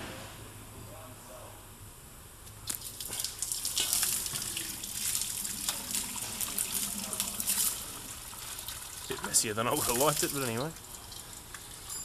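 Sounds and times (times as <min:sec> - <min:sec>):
coolant gushing and splashing: 0:02.6 - 0:12.0.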